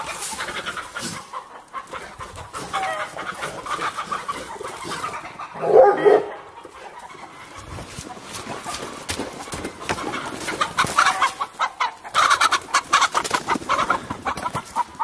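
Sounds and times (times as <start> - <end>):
hens clucking: 0.0 - 15.0
dog barking: 5.6 - 6.5.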